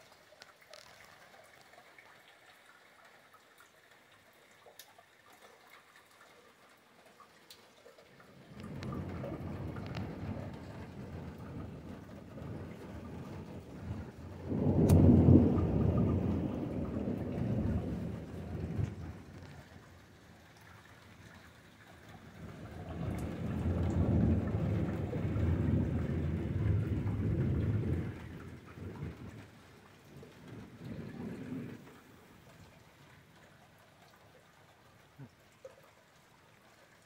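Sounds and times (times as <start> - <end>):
light rain pattering: 0.0 - 37.0
thunder rumbling: 8.4 - 21.0, 22.2 - 32.5.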